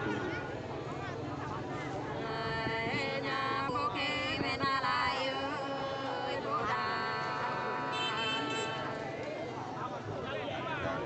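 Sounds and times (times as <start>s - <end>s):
unaccompanied folk singing: 1.5s - 9.8s.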